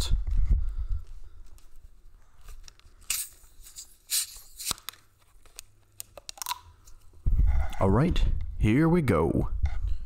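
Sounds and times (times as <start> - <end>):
bottle cap twisting open: 3.1 - 5.0, 6.0 - 6.7.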